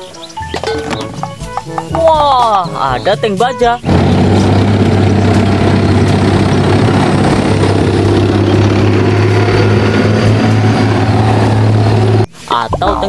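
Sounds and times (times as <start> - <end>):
tank diesel engines passing: 2.7 - 12.3.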